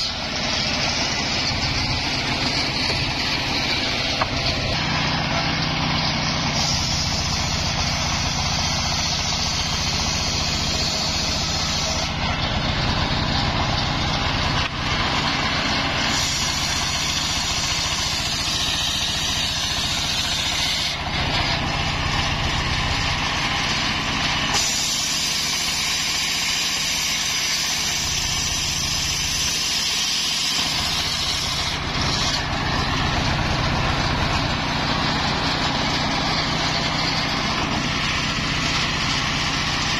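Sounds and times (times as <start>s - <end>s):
circular saw cutting log: 0.0s - 39.9s
stationary engine running: 0.0s - 39.9s.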